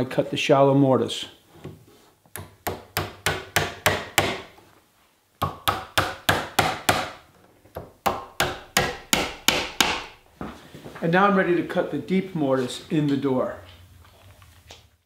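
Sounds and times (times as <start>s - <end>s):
hammer tapping nails into wood: 7.8s - 10.2s.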